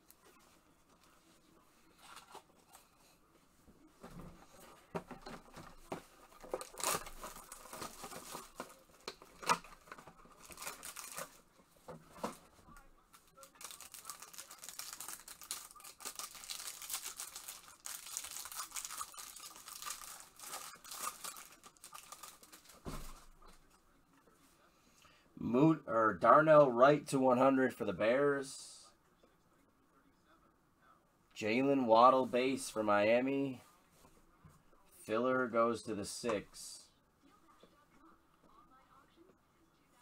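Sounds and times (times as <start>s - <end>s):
card pack wrapper crinkling: 6.4s - 11.4s, 13.4s - 22.8s.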